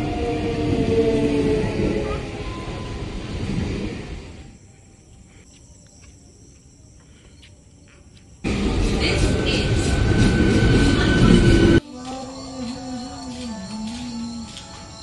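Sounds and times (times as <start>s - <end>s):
electric train passing: 0.0s - 5.0s, 8.4s - 15.0s.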